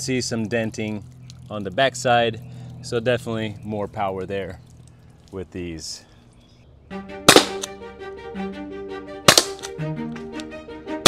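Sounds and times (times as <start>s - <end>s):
background music: 6.9s - 11.0s
launcher shots: 7.3s - 7.7s, 9.3s - 9.8s.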